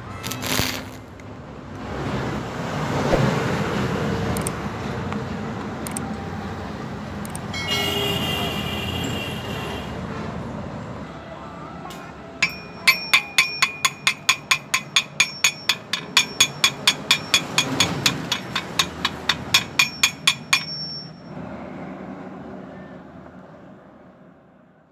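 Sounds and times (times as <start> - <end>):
chipping hammer tapping metal: 12.4 - 21.3
steel pipe ringing: 12.4 - 21.4.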